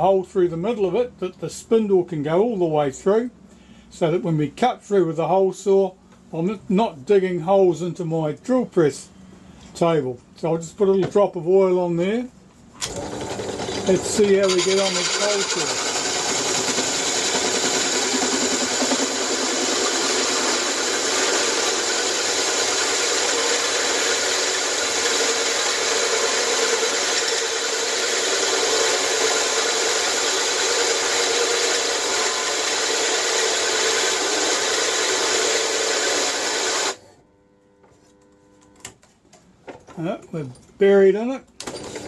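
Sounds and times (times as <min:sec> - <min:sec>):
hole saw grinding metal: 0:12.8 - 0:37.0
drill press motor hum: 0:12.8 - 0:38.9.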